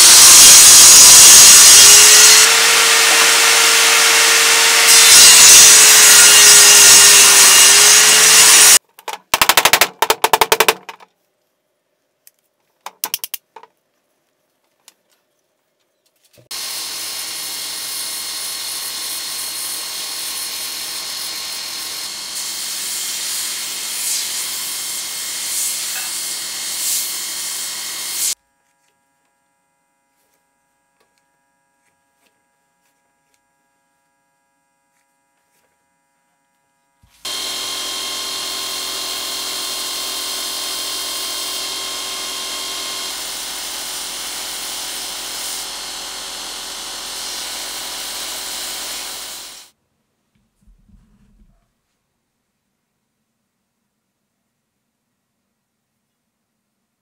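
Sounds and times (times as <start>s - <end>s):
belt grinder running: 0.0s - 8.8s, 16.5s - 28.4s, 37.2s - 49.7s
table saw cutting wood: 0.0s - 8.8s, 16.5s - 28.4s, 37.2s - 49.7s.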